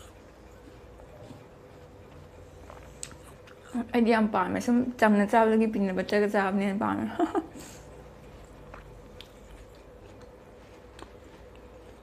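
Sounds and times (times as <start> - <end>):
person chewing fruit: 0.0 - 3.9, 7.8 - 12.0.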